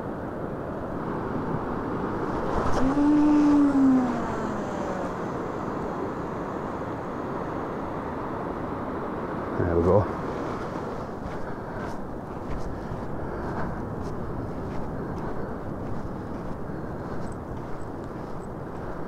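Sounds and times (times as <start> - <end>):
wind: 0.0 - 19.0
surf rushing on shore: 0.6 - 15.2
short rising and falling whine: 2.4 - 7.4.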